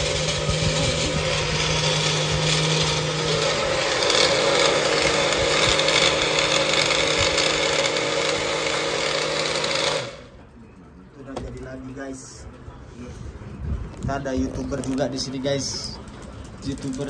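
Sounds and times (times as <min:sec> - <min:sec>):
blender motor running: 0:00.0 - 0:10.3.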